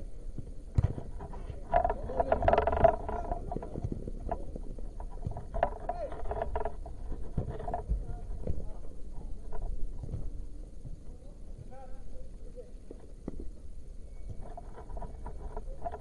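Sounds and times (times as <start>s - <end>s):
scattered knocks: 0.8s - 8.8s
indistinct voices: 1.2s - 9.8s.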